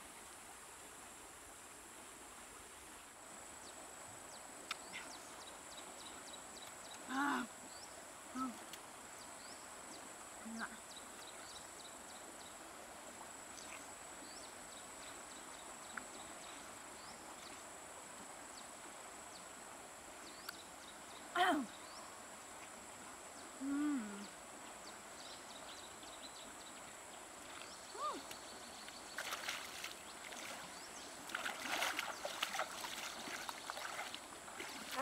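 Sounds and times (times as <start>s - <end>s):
insect drone: 0.0s - 35.0s
person's brief voiced sound: 7.1s - 7.5s, 8.3s - 8.6s, 21.4s - 21.7s.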